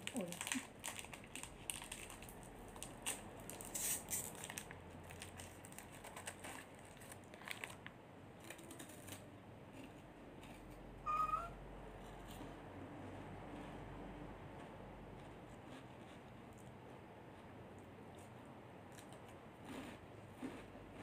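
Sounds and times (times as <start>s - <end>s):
plastic tearing: 0.0s - 9.2s
plastic wrapper crinkling: 0.0s - 9.2s
high squeak: 11.0s - 11.6s.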